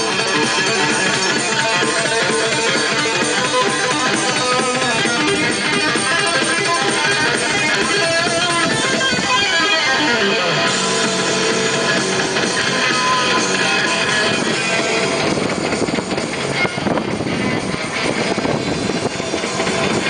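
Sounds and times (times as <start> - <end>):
guitar-led music: 0.0 - 20.0.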